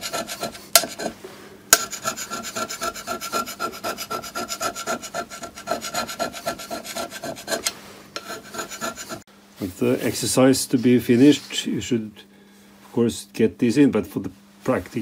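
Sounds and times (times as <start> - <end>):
scraper rasping on metal plate: 0.0 - 9.3.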